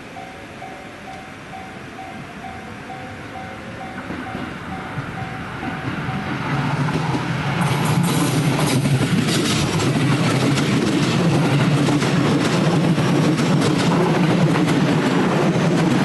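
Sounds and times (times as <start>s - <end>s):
level-crossing bell ringing: 0.0s - 6.6s
electric train humming: 0.0s - 16.0s
train wheels clattering: 1.1s - 16.0s.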